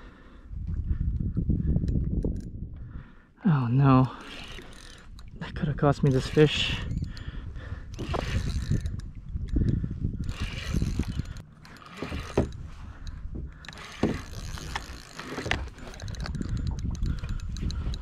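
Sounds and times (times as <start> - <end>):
fishing reel winding and clicking: 4.1 - 18.0.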